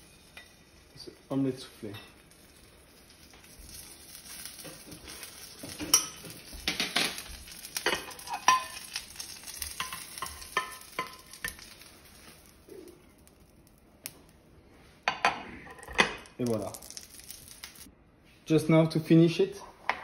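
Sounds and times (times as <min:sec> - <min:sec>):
omelette sizzling in pan: 0:00.0 - 0:17.9
spatula scraping and tapping pan: 0:04.3 - 0:12.5.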